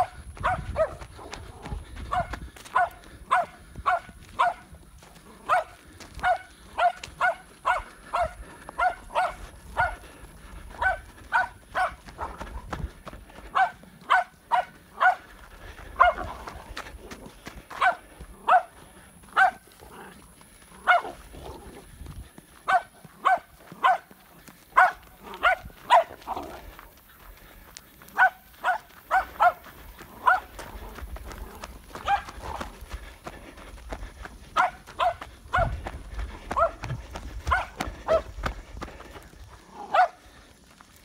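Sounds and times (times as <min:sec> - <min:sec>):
puppy barking sharply: 0:00.0 - 0:01.0, 0:02.1 - 0:04.6, 0:05.5 - 0:10.0, 0:10.8 - 0:12.0, 0:13.5 - 0:15.2, 0:19.4 - 0:19.6, 0:22.7 - 0:24.1, 0:24.8 - 0:26.2, 0:28.2 - 0:29.6, 0:34.6 - 0:35.7.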